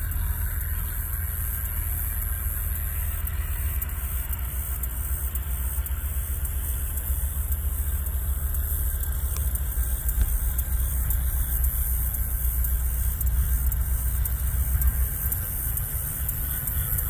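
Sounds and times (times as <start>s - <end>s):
diesel locomotive rumble: 0.0s - 17.0s.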